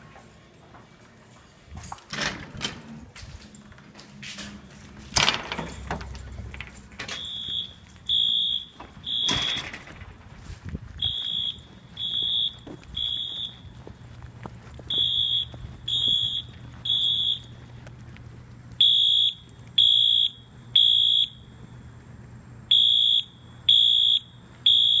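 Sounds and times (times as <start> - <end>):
fire alarm beeps: 7.0 - 10.0, 11.0 - 13.9, 14.9 - 17.6, 18.8 - 21.5, 22.7 - 25.0
door thudding: 8.8 - 10.2.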